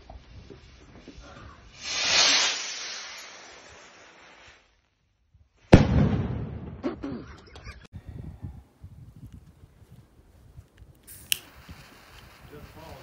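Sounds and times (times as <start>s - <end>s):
firework rocket whooshing: 0.1s - 6.1s, 11.0s - 13.0s
firework bang: 5.7s - 6.9s.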